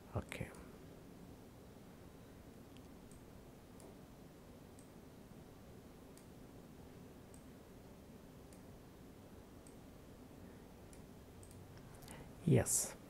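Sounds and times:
computer mouse clicks: 2.7s - 4.0s, 4.7s - 5.0s, 7.3s - 7.5s, 8.5s - 8.7s, 10.9s - 12.2s.

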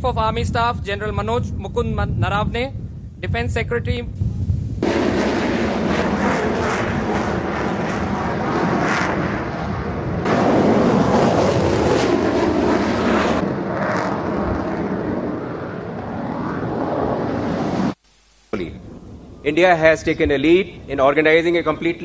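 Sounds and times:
fighter jet flying past: 4.8s - 18.0s.

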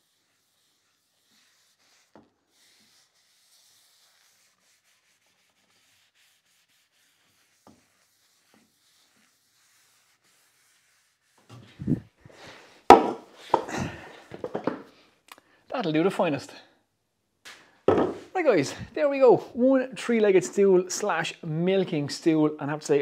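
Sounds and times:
cloth rag rubbing on wood: 0.0s - 12.2s.

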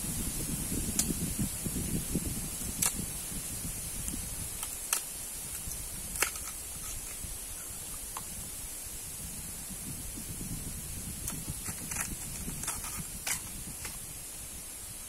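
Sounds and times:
knife cracking through husk: 4.6s - 7.2s.

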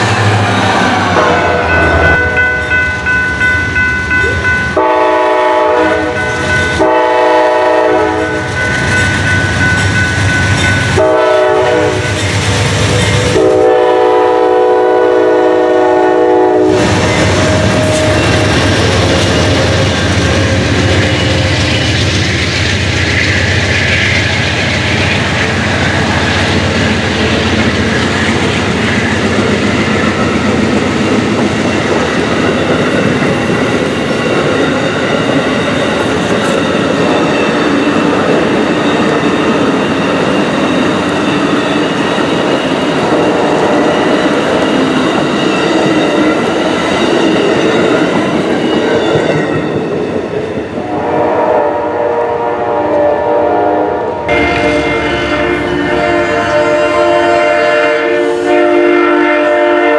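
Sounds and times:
train rolling past: 0.0s - 59.9s
train horn blasts: 1.1s - 2.9s, 4.7s - 8.5s, 10.9s - 12.2s, 13.2s - 21.4s, 50.8s - 59.9s.

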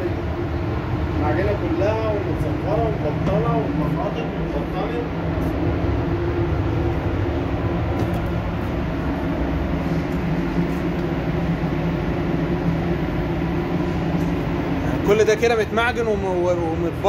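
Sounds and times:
ventilation fans running: 0.0s - 17.0s.

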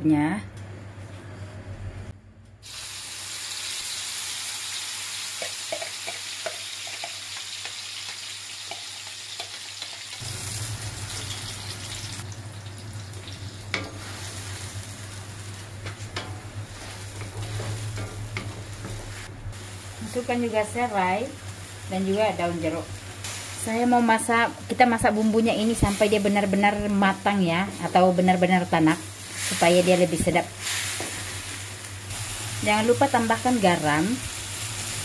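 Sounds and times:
paste sizzling in hot oil: 2.6s - 14.9s
wooden spatula scraping wok: 15.9s - 19.3s.

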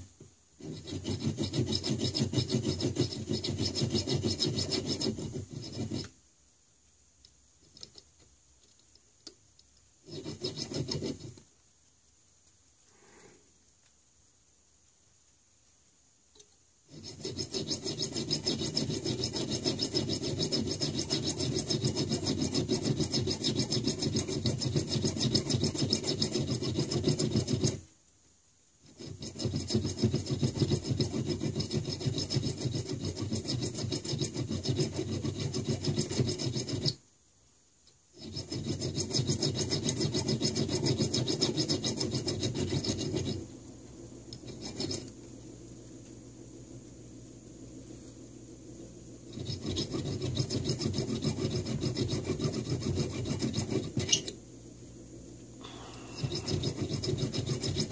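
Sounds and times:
hand file rasping on metal: 0.6s - 6.2s, 10.0s - 11.5s, 16.9s - 27.9s, 28.8s - 37.0s, 38.2s - 43.5s, 44.4s - 45.2s, 49.3s - 54.4s, 55.6s - 57.9s.

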